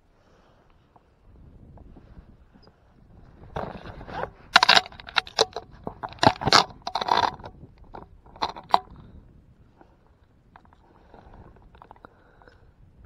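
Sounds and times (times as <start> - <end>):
fishing gear scrapes and clicks: 3.5 - 9.0.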